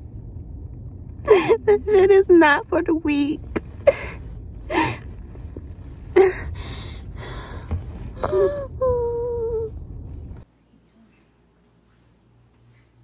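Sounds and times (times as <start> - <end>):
low car rumble: 0.0 - 10.5
woman sobbing and moaning: 1.3 - 2.0, 6.2 - 6.6, 8.2 - 9.7.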